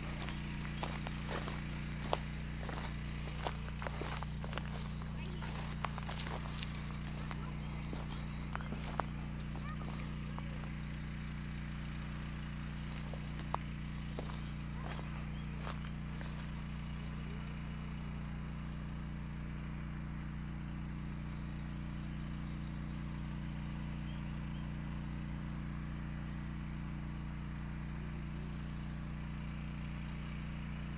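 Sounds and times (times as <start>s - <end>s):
insects trilling: 0.0s - 10.7s, 14.2s - 17.1s
loud low hum: 0.0s - 30.9s.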